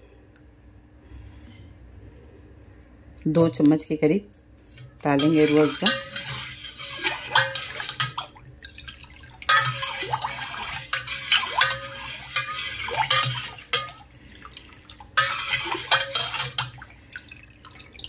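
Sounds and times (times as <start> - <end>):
spoon clinking against metal pot: 5.1 - 8.2, 9.4 - 14.0, 15.2 - 16.8
liquid swishing and sloshing: 5.1 - 18.0.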